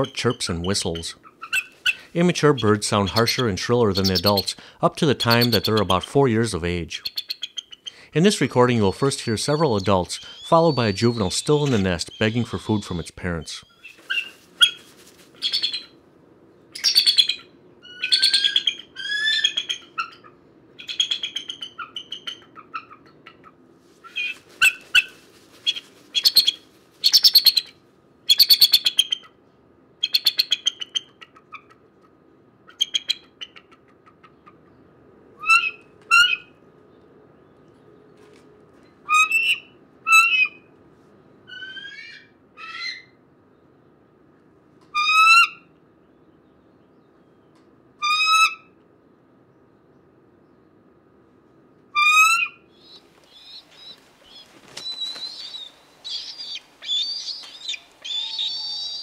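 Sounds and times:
eagles calling: 0.0 - 14.8, 52.0 - 59.0.

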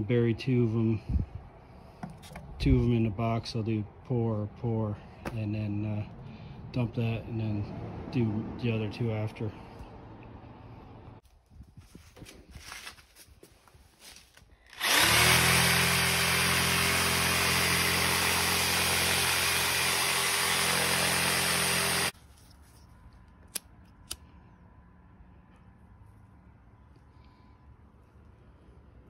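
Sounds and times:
power tool vibrating sand: 14.7 - 22.2.

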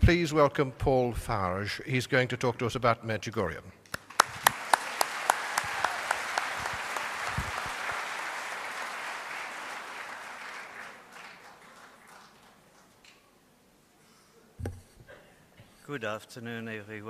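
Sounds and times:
audience applauding: 3.9 - 13.2
sharp individual claps: 3.9 - 13.3.

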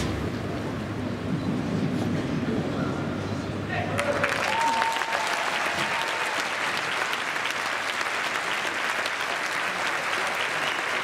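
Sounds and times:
audience applauding: 4.0 - 11.0.

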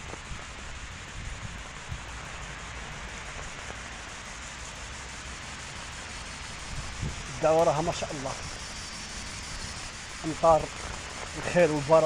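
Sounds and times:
heavy rain on pavement: 0.0 - 7.7, 10.2 - 12.0.

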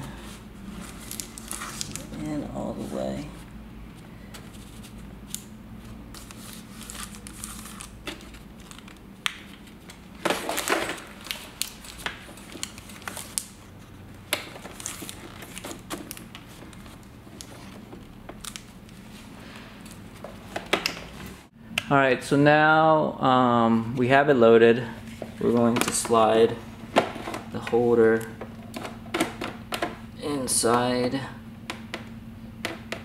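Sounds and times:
paper rustling and crinkling: 0.1 - 3.5, 4.2 - 20.6.

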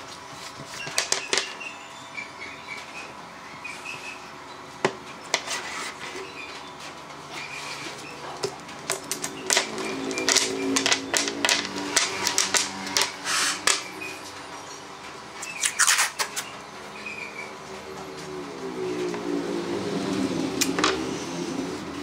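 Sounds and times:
wooden pieces clicking and knocking: 0.8 - 1.6, 8.4 - 13.9, 20.6 - 21.0
masking tape tearing off roll: 15.6 - 16.3.

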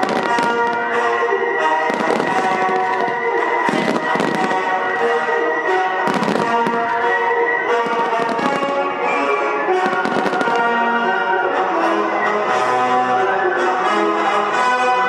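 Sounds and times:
fireworks bursting and crackling: 0.0 - 11.2
music with long held notes: 0.0 - 15.0.

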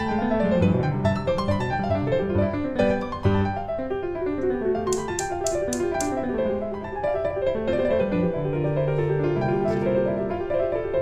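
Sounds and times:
gentle piano music: 0.0 - 11.0
sharp ticks: 4.9 - 6.2.

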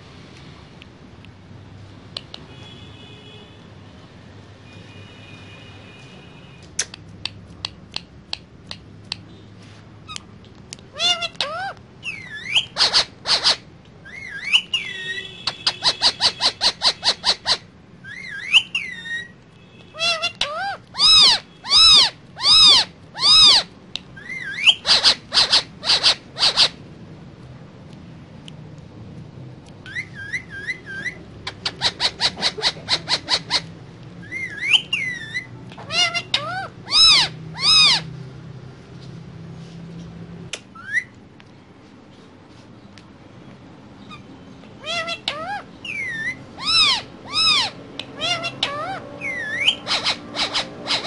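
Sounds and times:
harsh bird calls: 10.9 - 26.8, 29.8 - 38.1, 44.0 - 51.0
parakeet whistled chirps: 11.0 - 19.4, 20.0 - 26.8, 29.9 - 38.0, 40.8 - 41.1, 44.1 - 51.0.

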